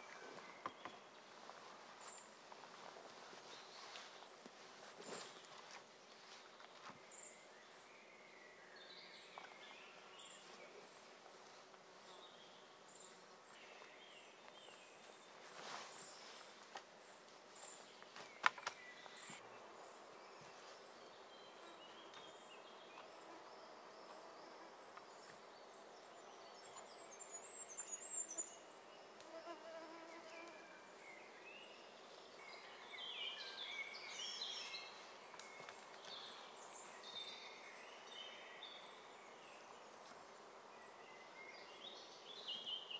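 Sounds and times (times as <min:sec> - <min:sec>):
birdsong: 0:00.0 - 0:42.9
faint insect buzzing: 0:29.2 - 0:30.9.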